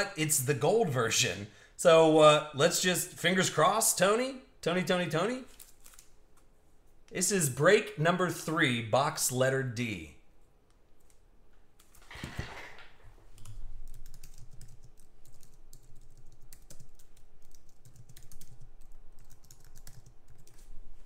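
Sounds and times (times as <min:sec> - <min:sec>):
typing on computer keyboard: 0:13.4 - 0:20.7.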